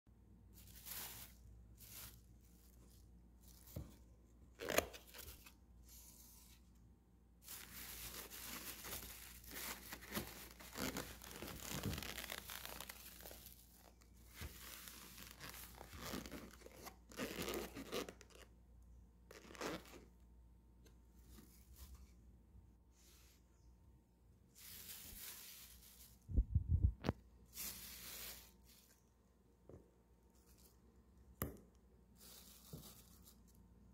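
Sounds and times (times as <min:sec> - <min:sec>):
plastic bag rustling and crinkling: 0:00.5 - 0:04.0, 0:07.4 - 0:18.2, 0:24.6 - 0:26.4, 0:27.5 - 0:29.1.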